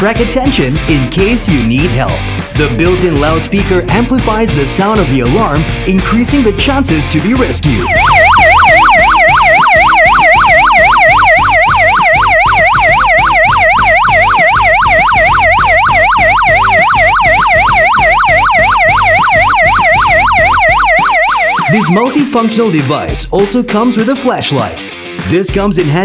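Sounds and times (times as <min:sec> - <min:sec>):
electronic siren alarm sweeping: 0:07.7 - 0:22.4.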